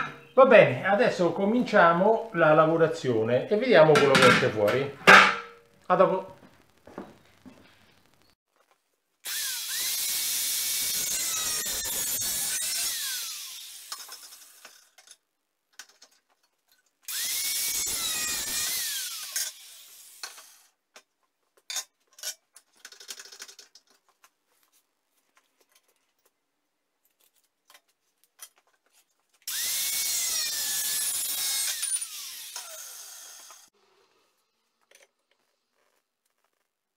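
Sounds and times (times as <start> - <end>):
angle grinder cutting metal: 9.3 - 15.0, 17.1 - 20.7, 29.5 - 33.7.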